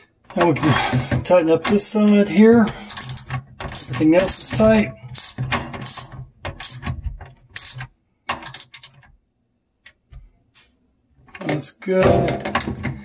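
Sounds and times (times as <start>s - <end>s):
ratchet wrench clicking: 2.9s - 6.9s.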